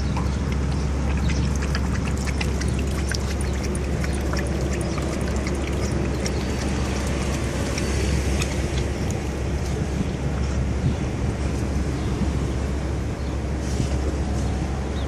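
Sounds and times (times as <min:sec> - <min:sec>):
dog lapping water: 0:00.0 - 0:09.9
steady low rumble: 0:00.0 - 0:15.0.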